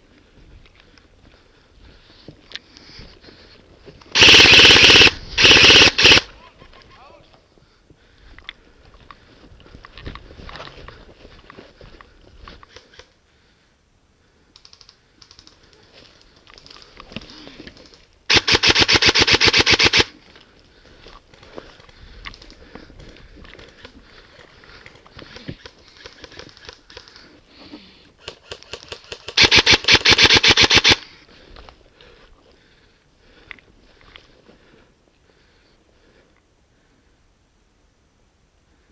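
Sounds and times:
airsoft rifle full-auto bursts: 4.1s - 6.3s, 18.3s - 20.2s, 28.2s - 31.1s
faint clicks: 8.3s - 13.2s, 14.4s - 18.2s, 20.2s - 27.4s.

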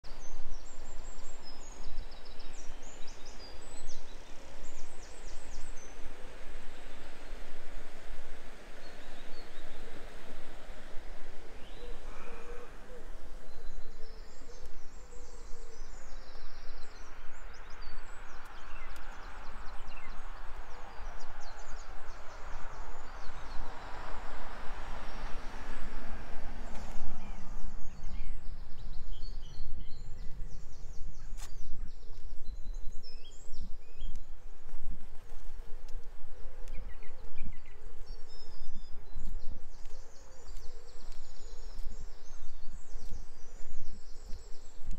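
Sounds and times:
outdoor background hiss: 0.0s - 44.9s
small birds chirping: 0.1s - 44.9s
broad rushing noise: 19.0s - 28.0s.

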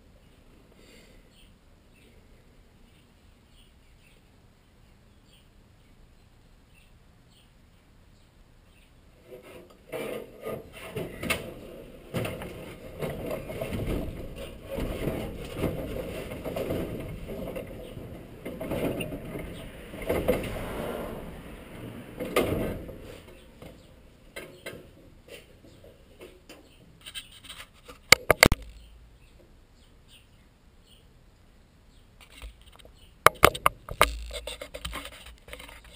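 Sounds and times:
knocks rubbing and creaks: 9.2s - 28.9s, 32.2s - 35.9s.

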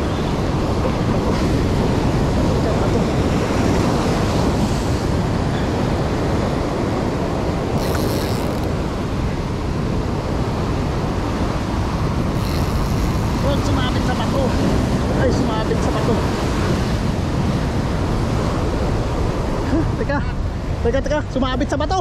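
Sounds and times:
wind buffeting microphone: 0.0s - 21.8s
short hiss: 7.8s - 8.7s.

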